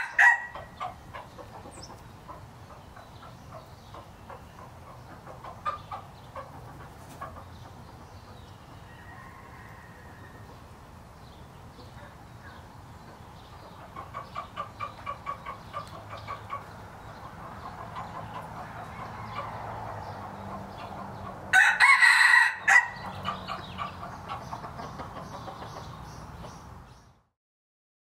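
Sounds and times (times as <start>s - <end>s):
rooster crowing: 0.0s - 0.6s, 8.8s - 10.6s, 18.9s - 19.8s, 21.5s - 23.1s.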